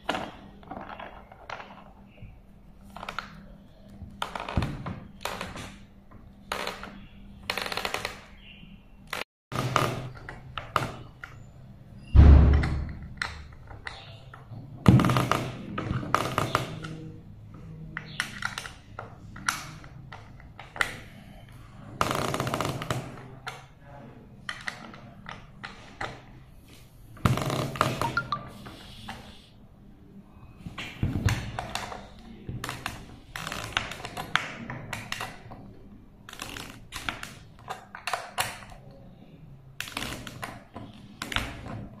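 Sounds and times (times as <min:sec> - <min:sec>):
thuds: 0:12.2 - 0:13.0.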